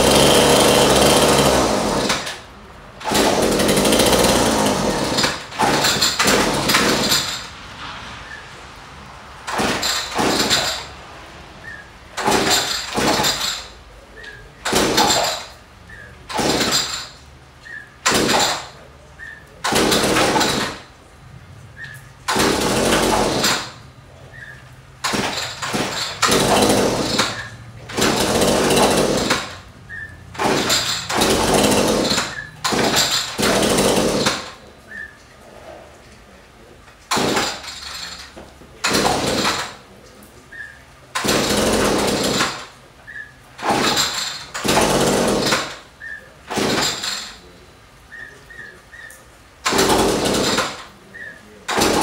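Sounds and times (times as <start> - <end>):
string trimmer engine revving: 0.0 - 2.4, 3.0 - 7.4, 25.1 - 29.6, 30.3 - 34.5.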